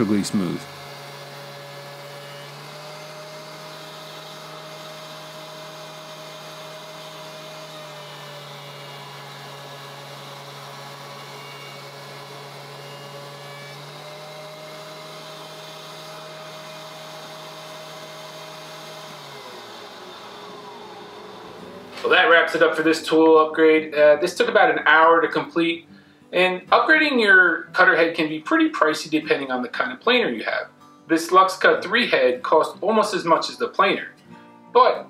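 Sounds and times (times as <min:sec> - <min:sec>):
thickness planer humming: 0:00.0 - 0:23.0.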